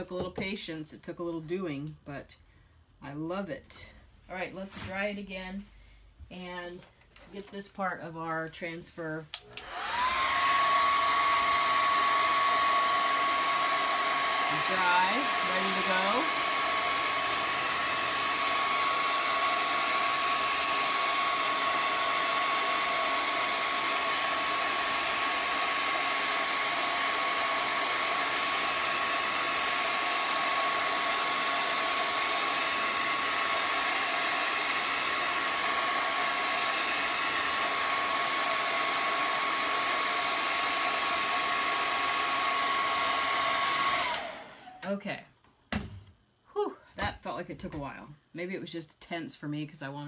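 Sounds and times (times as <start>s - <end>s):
hair dryer blowing: 9.3s - 44.9s.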